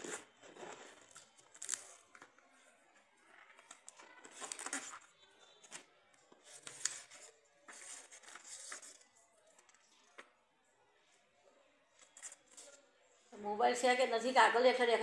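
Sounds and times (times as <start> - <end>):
cardboard and paper rustling: 0.0 - 2.6, 3.3 - 10.2.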